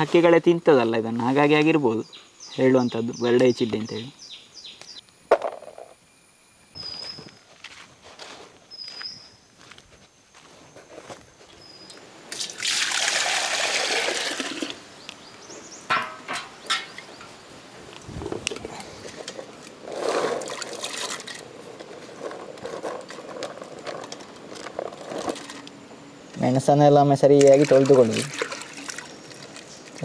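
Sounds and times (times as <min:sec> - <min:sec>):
water pouring into steel vessel: 0:12.4 - 0:14.8.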